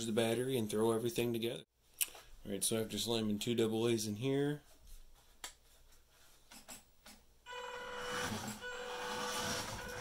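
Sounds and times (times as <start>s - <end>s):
electric motor whine: 7.5s - 10.0s.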